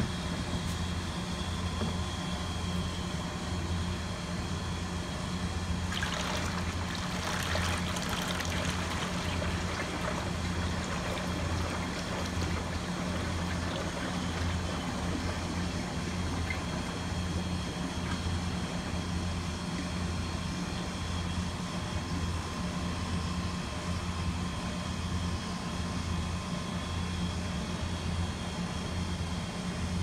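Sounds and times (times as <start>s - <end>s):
kitchen compressors humming: 0.0s - 22.8s
oil pouring into a funnel: 5.9s - 17.6s.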